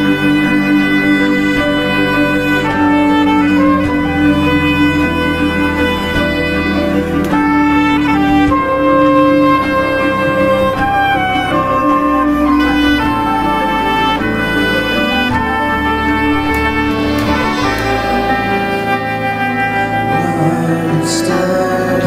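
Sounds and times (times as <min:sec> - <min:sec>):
backing track with bowed strings: 0:00.0 - 0:22.0
soprano saxophone melody: 0:00.0 - 0:22.0.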